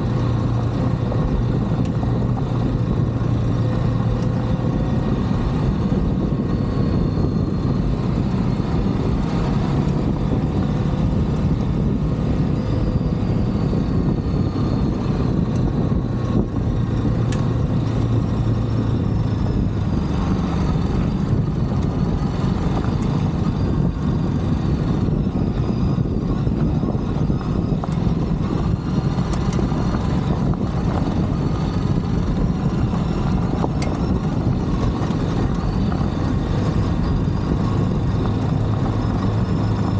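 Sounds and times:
motorcycle engine running: 0.0 - 39.9
wind rumbling: 0.0 - 39.9.

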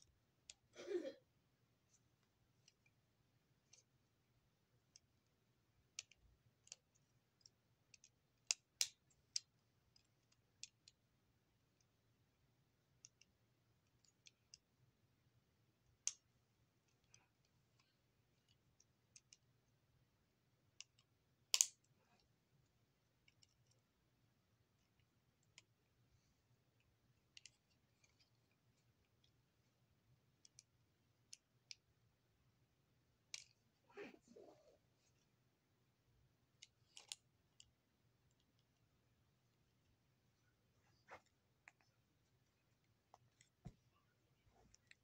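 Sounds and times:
small clicks and taps: 4.9 - 11.0, 15.8 - 19.5, 20.7 - 22.3, 23.2 - 23.9, 26.8 - 29.4, 30.3 - 31.9, 36.6 - 38.8.

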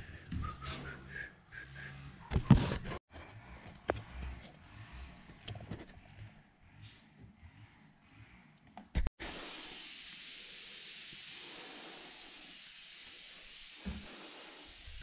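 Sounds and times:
high hiss of sprayed air: 9.2 - 15.0.

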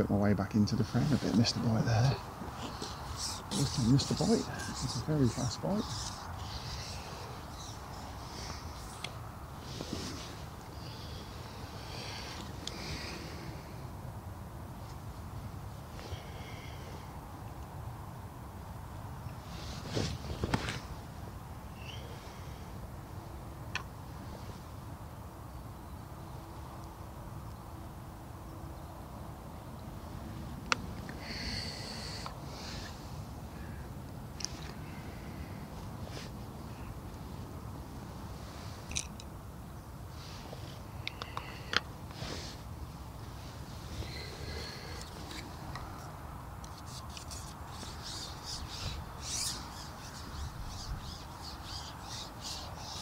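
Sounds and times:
faint steady hum: 0.0 - 53.0
bird giving harsh calls: 2.5 - 9.0, 47.2 - 53.0.

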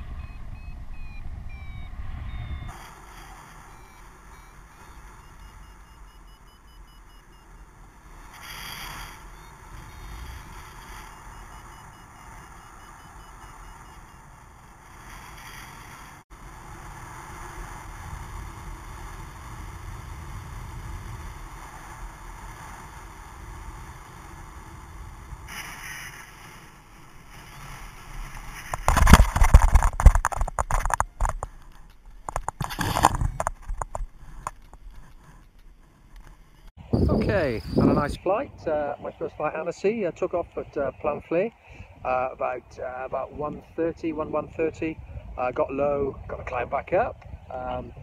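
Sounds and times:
faint rapid beeping: 0.0 - 2.8, 3.4 - 7.8, 9.3 - 14.4
wind rushing over microphone: 0.0 - 5.2, 8.1 - 13.8, 14.4 - 36.2, 36.8 - 48.0
bumps and buffeting: 0.0 - 16.2, 26.4 - 48.0.

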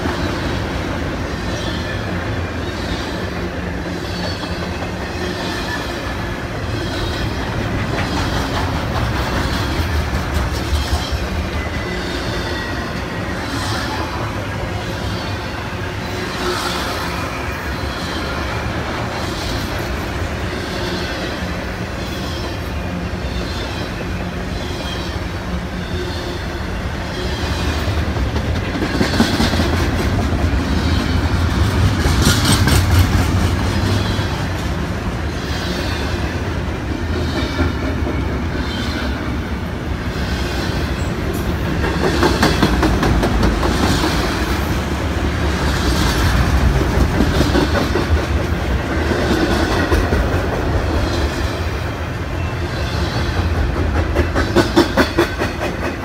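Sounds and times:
freight train wheels rumbling on rail: 0.0 - 56.0
wheels clicking over rail joints: 7.0 - 11.4.

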